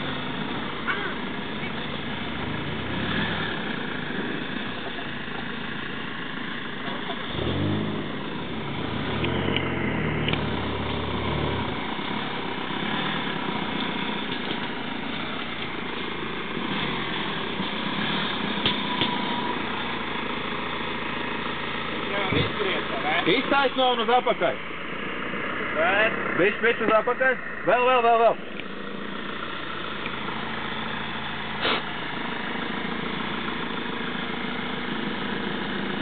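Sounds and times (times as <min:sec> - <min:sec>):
car engine revving: 0:00.0 - 0:14.7.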